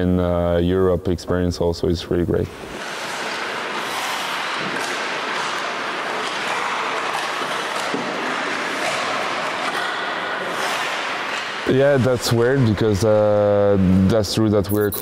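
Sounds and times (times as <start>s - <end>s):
skate blades hissing on ice: 2.7s - 4.8s
sticks and pucks scraping and knocking: 2.7s - 14.0s.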